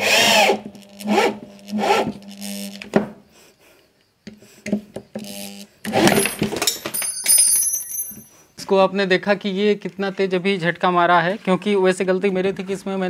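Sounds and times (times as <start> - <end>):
drill driving screw into wood: 0.0 - 3.2, 5.1 - 6.6.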